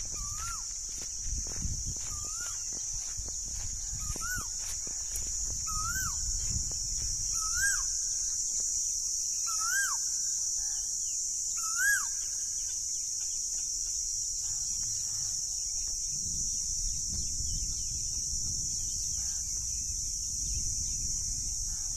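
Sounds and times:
bird calling: 0:00.0 - 0:00.7, 0:05.6 - 0:06.4, 0:07.3 - 0:08.3, 0:09.4 - 0:10.8, 0:11.6 - 0:13.4
high-pitched hiss: 0:00.0 - 0:21.9.

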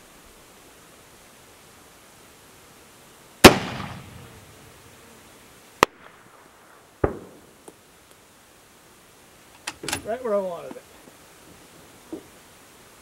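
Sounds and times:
rifle shots with echo: 0:03.4 - 0:04.3, 0:07.0 - 0:07.5.

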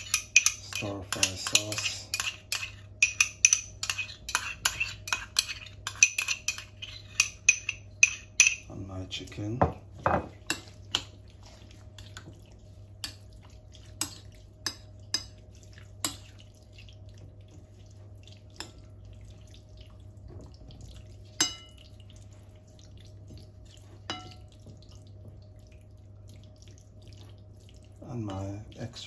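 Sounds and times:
clinks against a ceramic bowl: 0:00.0 - 0:08.7, 0:21.4 - 0:21.8, 0:24.1 - 0:24.5.

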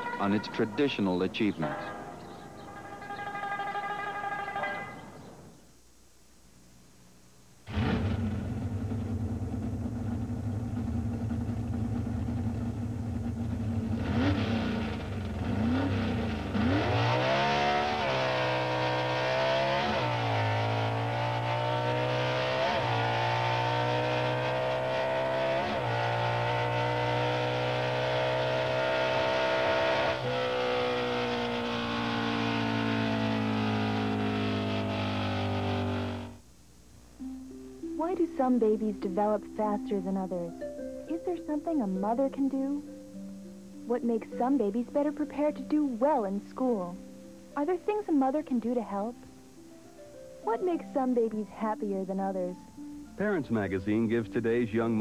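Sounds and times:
vehicle engine accelerating: 0:07.7 - 0:36.4.

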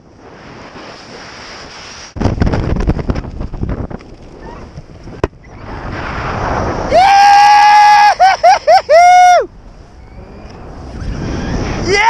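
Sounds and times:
wind rushing over microphone: 0:00.0 - 0:12.0
man whooping yell: 0:06.9 - 0:09.5.

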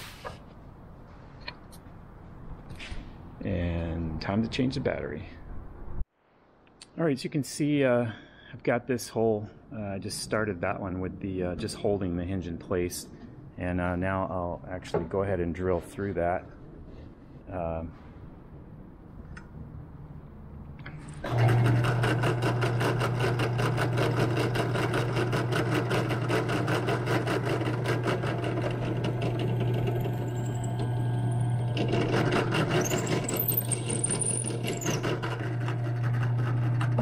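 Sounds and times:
electric drill running: 0:21.3 - 0:37.0.

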